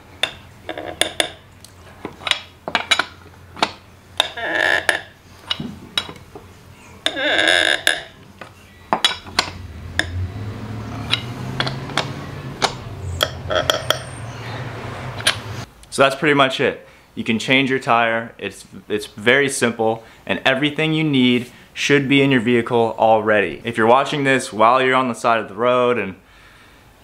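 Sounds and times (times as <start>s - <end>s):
wrench clinking on lug nuts: 0.2s - 1.4s, 2.0s - 6.2s, 8.9s - 10.2s, 11.0s - 14.2s
wrench squeaking: 0.2s - 10.2s, 11.0s - 14.5s.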